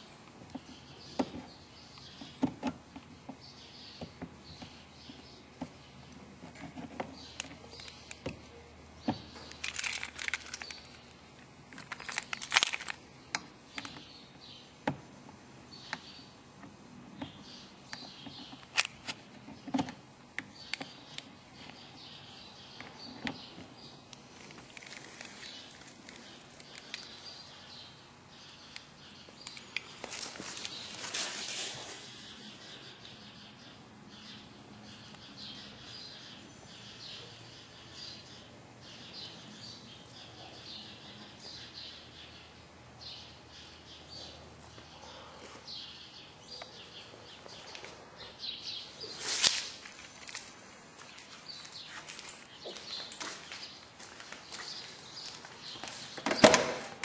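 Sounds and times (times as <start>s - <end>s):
paper tag rustling: 11.7s - 13.0s, 29.8s - 32.2s, 49.1s - 56.1s.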